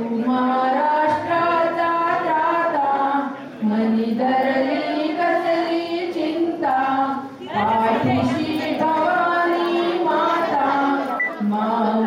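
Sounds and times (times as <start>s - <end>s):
women singing together: 0.0s - 12.0s.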